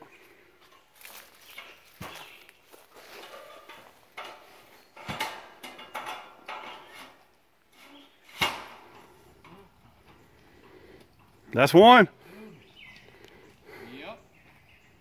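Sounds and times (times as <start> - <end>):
metal tubing clanking and rattling: 3.0 - 10.3
sharp metal knocks: 5.0 - 7.0.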